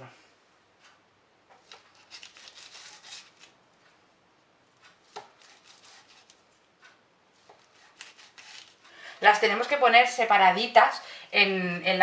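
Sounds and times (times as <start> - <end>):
knife slicing pastry: 1.6 - 3.6, 4.9 - 6.6, 7.4 - 8.8.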